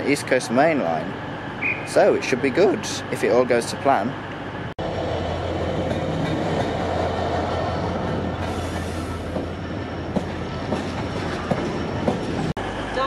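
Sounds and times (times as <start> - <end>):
diesel locomotive engine drone: 0.0 - 13.0
wheels clicking over rail joints: 5.7 - 12.5.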